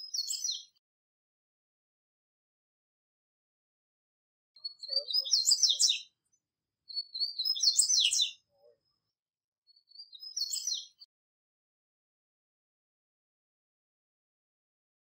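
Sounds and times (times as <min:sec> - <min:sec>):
bird twittering song: 0:00.0 - 0:00.8, 0:04.6 - 0:09.0, 0:09.7 - 0:11.1.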